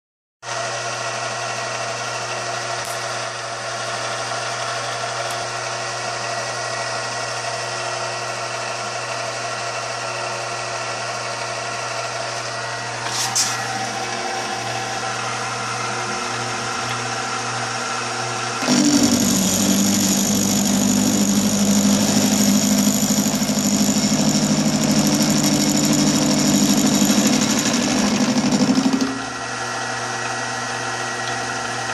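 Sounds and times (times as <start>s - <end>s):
milling machine motor hum: 0.5s - 31.9s
end mill cutting steel with chatter: 12.8s - 31.9s.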